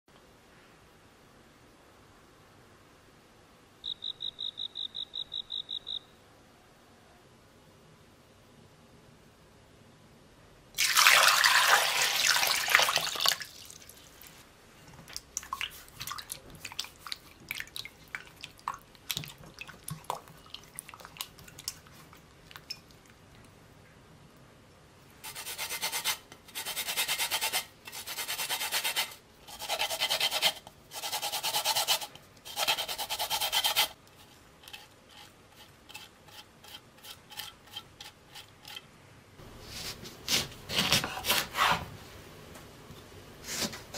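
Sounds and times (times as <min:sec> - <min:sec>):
water pouring into a glass bowl: 0:10.8 - 0:13.8
water splashing and dripping: 0:15.1 - 0:23.2.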